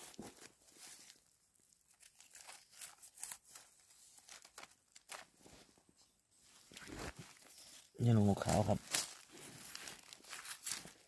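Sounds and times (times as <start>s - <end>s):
dry leaves crackling and rustling: 0.0s - 5.3s, 7.5s - 11.0s.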